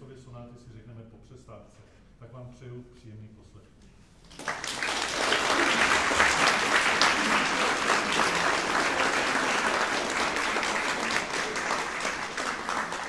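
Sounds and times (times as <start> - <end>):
audience applauding: 4.3 - 13.0.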